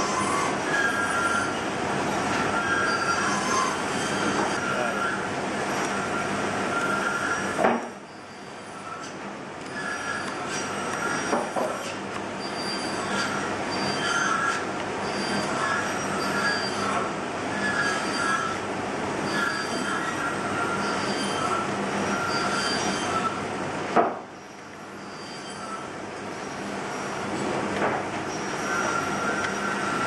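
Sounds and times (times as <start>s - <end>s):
knife slicing wood with squeaks: 8.8s - 17.0s.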